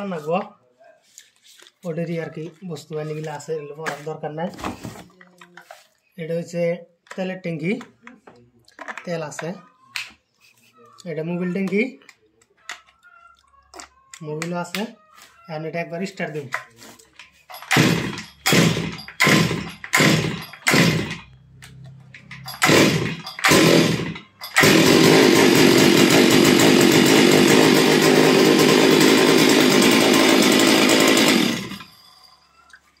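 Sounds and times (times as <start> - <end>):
starter cord pulled: 17.5 - 21.2
chainsaw running: 17.5 - 21.4, 22.1 - 32.3.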